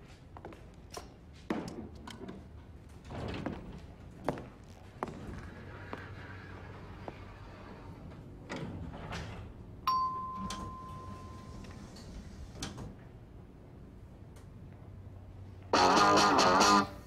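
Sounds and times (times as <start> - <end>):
elevator bell ding: 9.8 - 12.0.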